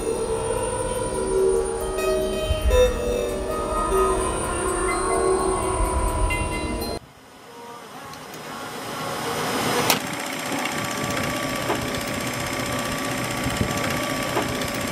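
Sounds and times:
faint hum: 0.0s - 14.9s
film projector clatter: 9.9s - 14.9s.

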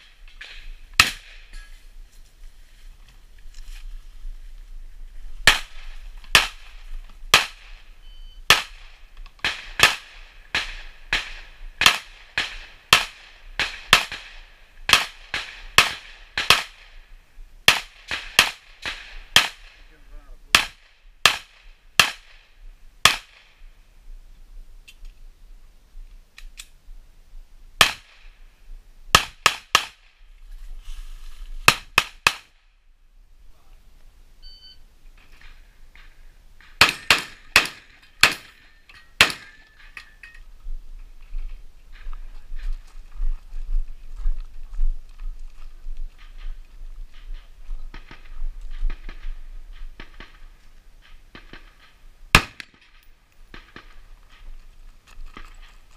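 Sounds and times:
gunshots: 0.0s - 1.5s, 5.4s - 7.9s, 8.5s - 17.0s, 17.7s - 22.4s, 27.8s - 28.3s, 29.1s - 30.1s, 35.2s - 39.7s, 47.9s - 54.0s.

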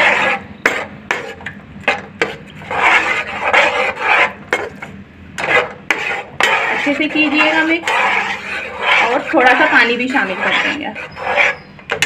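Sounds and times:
metal spatula scraping a pan: 0.0s - 12.0s.

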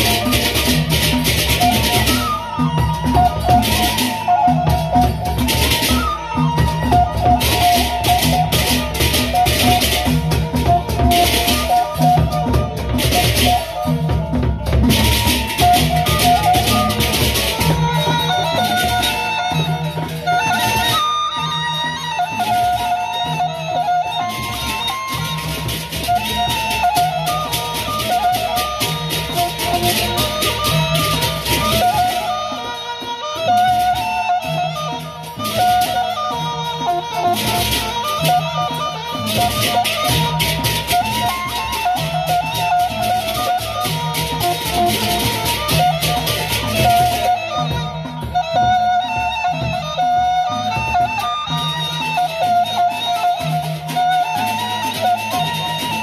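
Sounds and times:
big barrel drums beating: 0.0s - 23.7s, 33.4s - 56.0s.

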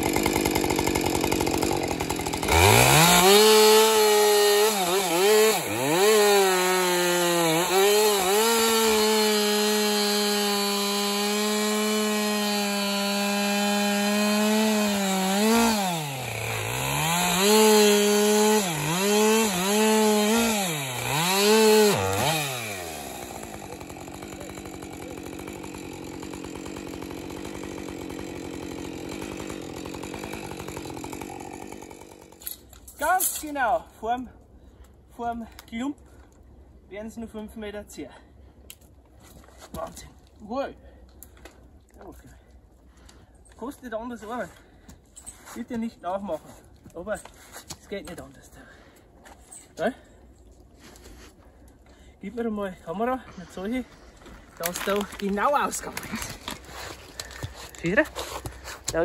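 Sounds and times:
chainsaw cutting wood: 0.0s - 33.4s, 53.3s - 59.0s.

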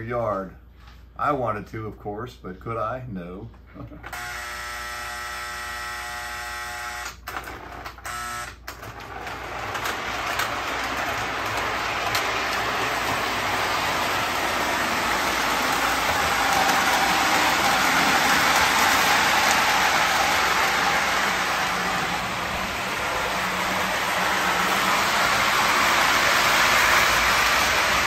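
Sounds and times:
toy train horn buzzing: 4.1s - 7.3s, 8.0s - 8.8s
toy train rumbling on track: 7.4s - 28.0s.

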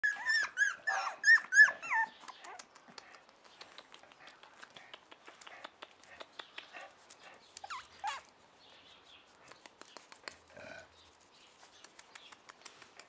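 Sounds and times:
puppies whimpering: 0.0s - 2.3s, 7.6s - 8.3s.

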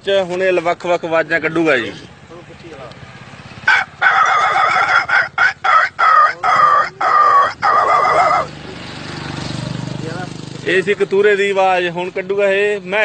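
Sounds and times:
man imitating puppy yelps: 4.2s - 8.6s.

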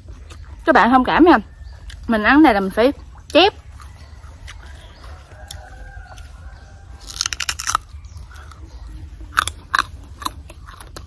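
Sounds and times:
open-mouthed chewing: 0.0s - 11.0s
biting into crisp mango: 3.0s - 11.0s.

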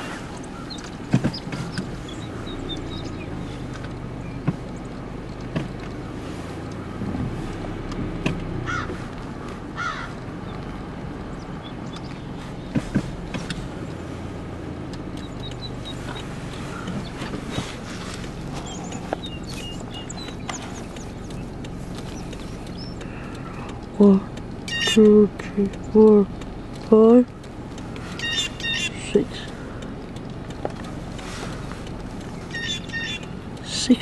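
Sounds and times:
car engine idling: 0.0s - 34.0s
sharp clicks: 0.0s - 34.0s
short bird calls: 28.0s - 29.8s, 32.4s - 33.4s.

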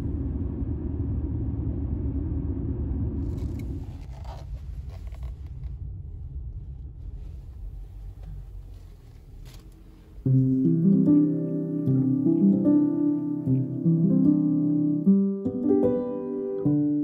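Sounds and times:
car road rumble inside cabin: 0.0s - 10.9s
faint scrapes and clicks: 3.2s - 5.8s.

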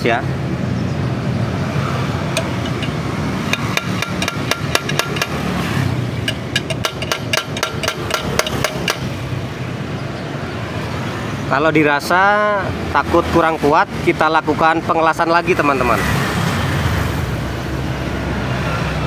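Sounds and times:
metal-on-metal hammering: 2.3s - 9.4s.

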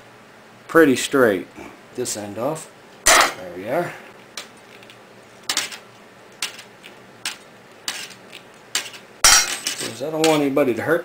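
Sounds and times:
metal clatter: 6.4s - 10.4s.

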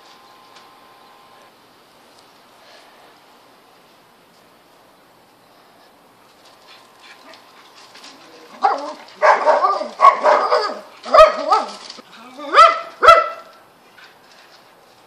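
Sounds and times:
dog barking loudly: 8.6s - 11.8s, 12.5s - 13.6s.

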